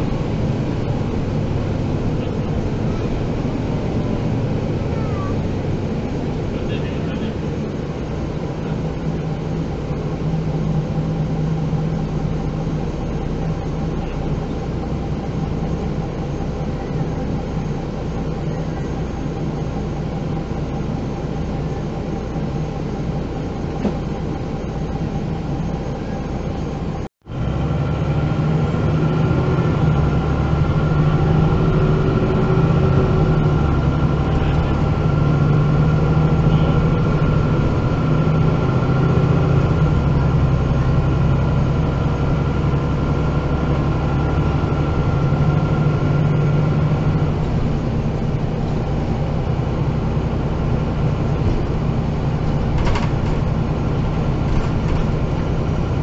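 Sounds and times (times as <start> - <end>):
bus engine drone: 0.0 - 56.0
high engine whine: 0.0 - 56.0.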